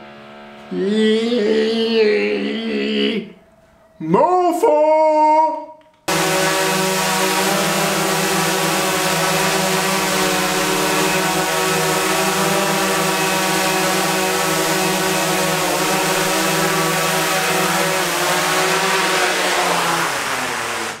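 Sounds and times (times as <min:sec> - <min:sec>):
motor running: 0:06.1 - 0:21.0.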